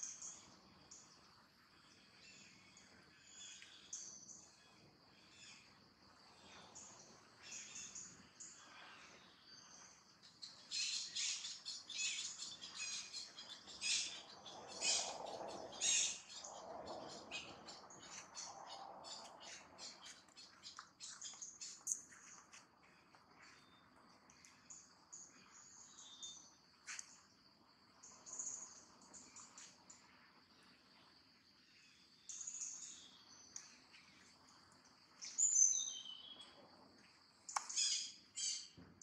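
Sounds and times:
birds chirping: 6.4s - 27.3s.

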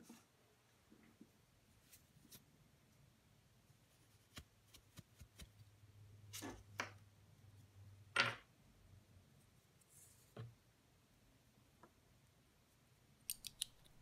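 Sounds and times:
bobbin case clicks and rubs: 13.3s - 14.0s.

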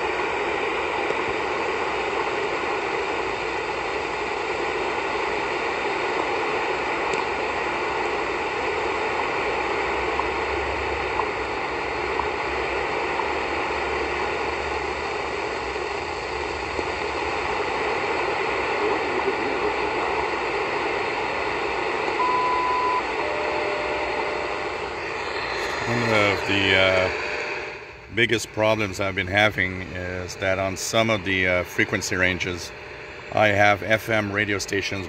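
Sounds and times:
shortwave radio static: 0.0s - 35.0s
high beep: 22.2s - 24.0s.

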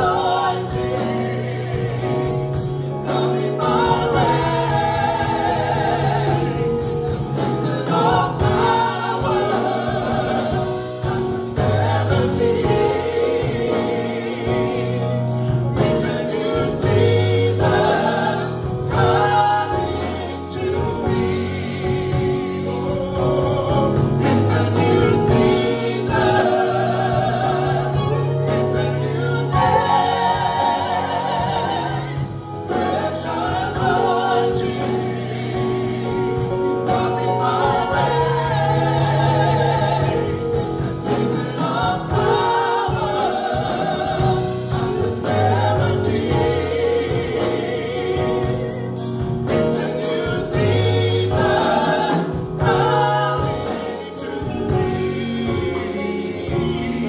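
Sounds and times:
drums: 0.0s - 57.0s
keyboard: 0.0s - 57.0s
voices singing in harmony: 0.0s - 57.0s.

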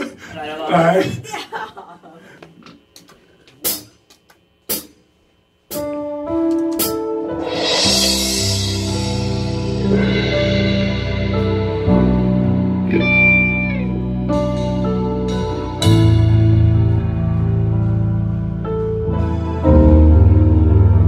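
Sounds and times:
electronic keyboard chords: 5.7s - 21.0s.

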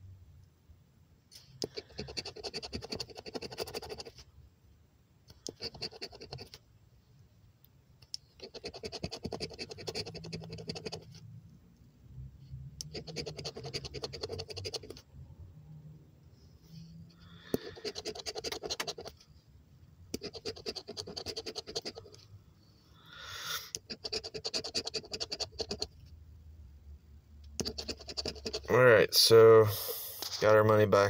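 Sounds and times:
scratch-off ticket being scraped: 1.6s - 4.1s, 8.4s - 11.1s, 12.9s - 15.0s, 17.6s - 19.1s, 20.2s - 22.2s, 23.8s - 25.9s, 27.6s - 28.8s.

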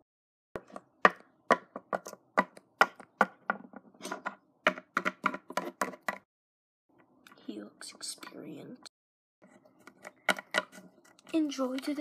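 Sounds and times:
plastic figurines tapping on wood: 0.6s - 6.2s, 9.9s - 11.9s.

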